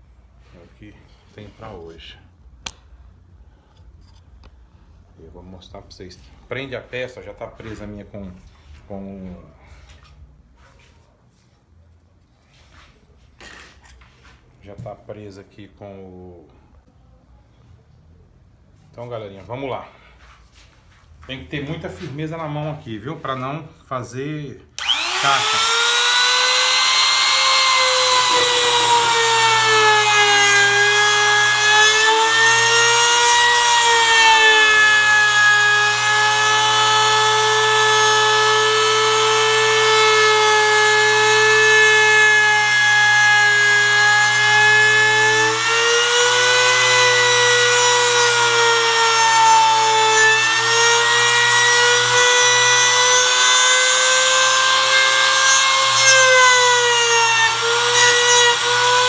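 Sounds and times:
router whining cutting wood: 24.8 - 59.0.

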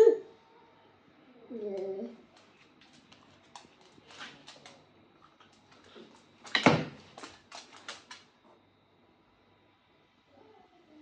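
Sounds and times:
thump on floor: 6.5 - 7.0.

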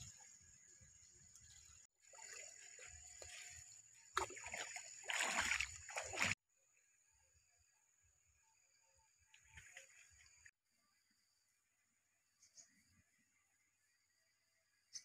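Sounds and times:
water splashing and sloshing: 0.0 - 6.4, 9.3 - 10.6.

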